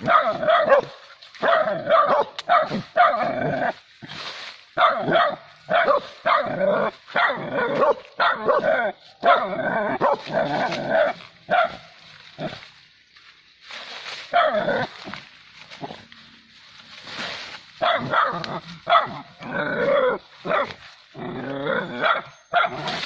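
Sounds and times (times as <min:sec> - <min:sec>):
dogs barking excitedly: 0:00.0 - 0:03.4, 0:04.8 - 0:12.0, 0:14.3 - 0:15.0, 0:17.8 - 0:20.8, 0:21.9 - 0:23.0.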